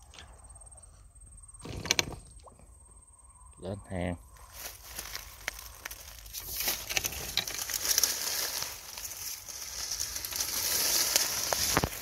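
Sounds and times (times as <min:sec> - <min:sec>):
leaves and twigs rustling: 0:04.3 - 0:12.0.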